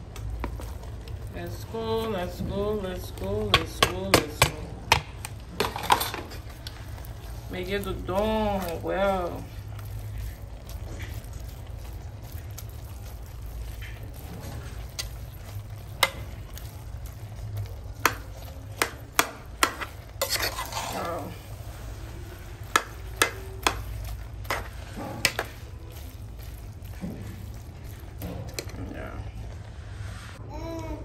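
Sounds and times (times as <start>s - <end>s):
metal spoon clanking against pot: 3.4s - 6.5s, 14.9s - 16.7s, 18.0s - 21.2s, 22.6s - 25.6s.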